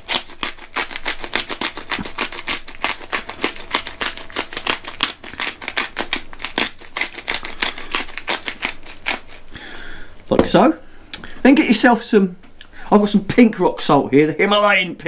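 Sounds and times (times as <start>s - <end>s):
pepper grinder crunching: 0.0s - 9.6s.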